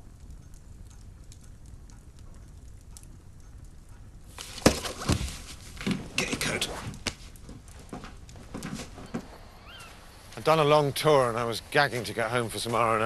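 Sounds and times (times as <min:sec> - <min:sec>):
clothing rustling: 0:04.3 - 0:10.4.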